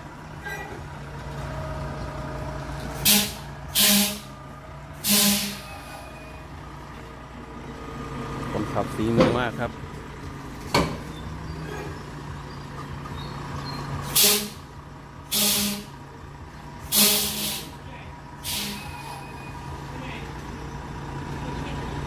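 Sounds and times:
truck diesel engine running: 0:00.0 - 0:22.0
air brakes hissing: 0:03.0 - 0:04.4, 0:05.0 - 0:06.4, 0:14.0 - 0:14.7, 0:15.3 - 0:15.9, 0:16.9 - 0:17.8, 0:18.4 - 0:19.6.

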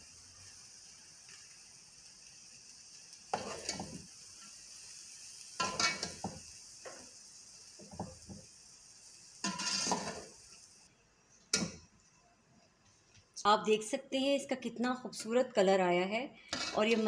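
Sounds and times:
food sizzling: 0:00.0 - 0:13.0, 0:16.5 - 0:17.0
metal spoon scraping a pot: 0:03.4 - 0:03.9, 0:09.5 - 0:10.2, 0:16.5 - 0:17.0.

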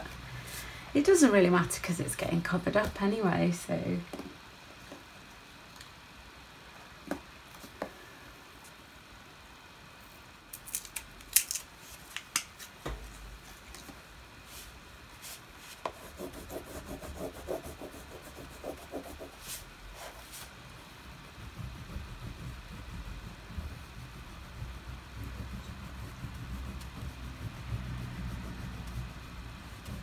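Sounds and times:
crayon scribbling on paper: 0:15.9 - 0:20.2, 0:21.2 - 0:30.0.

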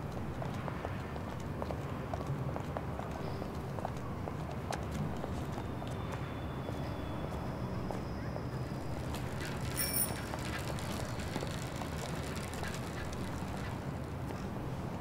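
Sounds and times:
traffic rumble: 0:00.0 - 0:15.0
faint clicks and steps: 0:09.0 - 0:14.5
short bright ring: 0:09.8 - 0:10.2.

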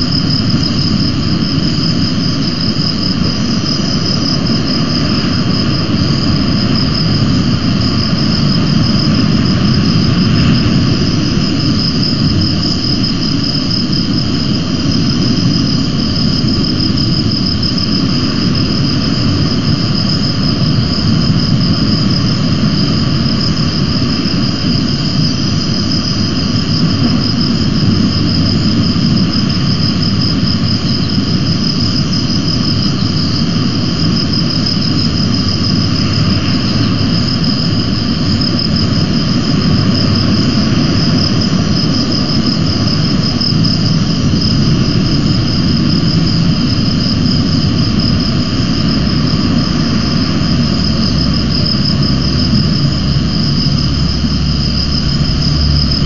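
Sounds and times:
continuous high-pitched whine: 0:00.0 - 0:56.0
low rumble: 0:43.0 - 0:56.0.

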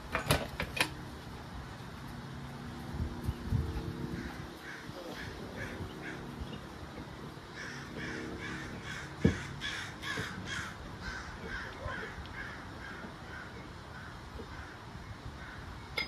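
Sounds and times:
bird harsh calls: 0:04.2 - 0:15.9.

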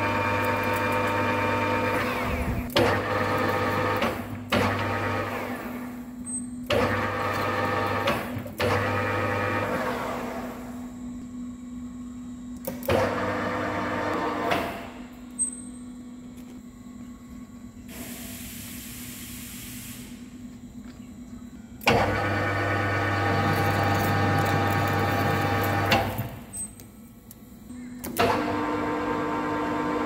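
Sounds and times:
low machine hum: 0:00.0 - 0:30.0
metal lathe whining: 0:22.0 - 0:26.3.

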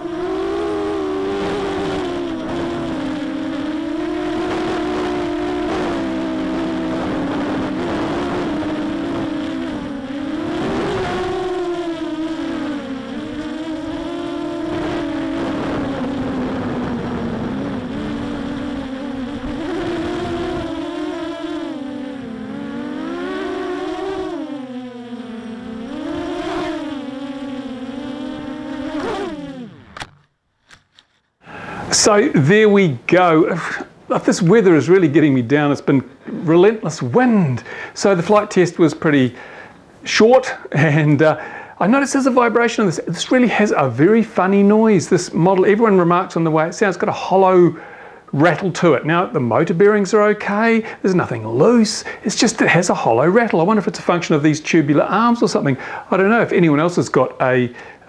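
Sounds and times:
quadcopter motors whining: 0:00.0 - 0:31.5.

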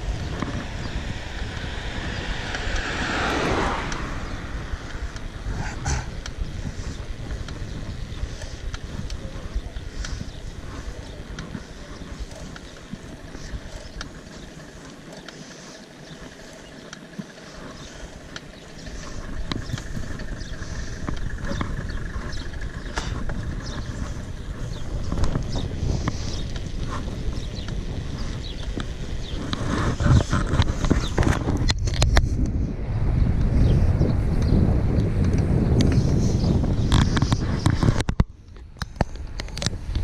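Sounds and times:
bike clicks and rattles: 0:00.0 - 0:32.7, 0:33.3 - 0:40.0
bike tyres rolling on asphalt: 0:00.0 - 0:40.0
wind on microphone: 0:00.0 - 0:40.0.

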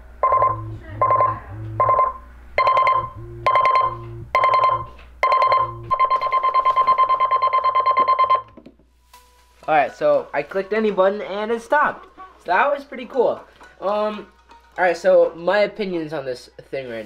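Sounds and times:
low pulsing vibration buzz: 0:00.0 - 0:06.0
alarm clock beeping: 0:00.2 - 0:08.5.

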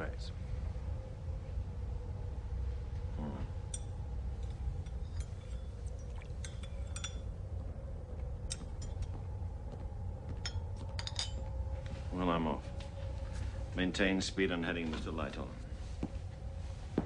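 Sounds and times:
faint hum: 0:00.0 - 0:17.0
ship low rumble: 0:00.0 - 0:17.0
light clinks and clicks: 0:03.6 - 0:07.4, 0:08.5 - 0:09.3, 0:10.3 - 0:11.6.

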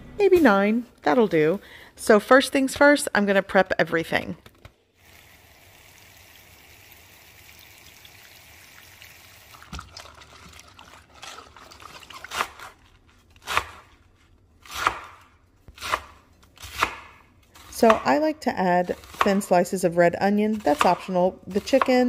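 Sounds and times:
tap water running into bowl: 0:05.7 - 0:12.3
knife chopping on cutting board: 0:14.7 - 0:17.2.

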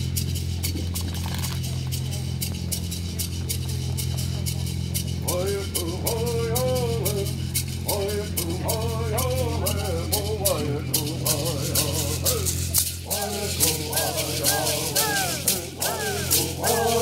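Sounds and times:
gourd rattles shaken: 0:00.0 - 0:17.0
steady low hum: 0:00.0 - 0:17.0
group of people singing: 0:05.2 - 0:17.0.

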